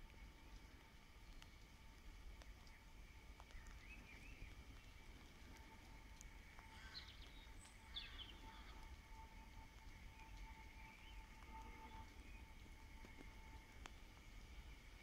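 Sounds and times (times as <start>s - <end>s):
low steady background rumble: 0.0s - 15.0s
faint bird chirps: 6.5s - 9.0s.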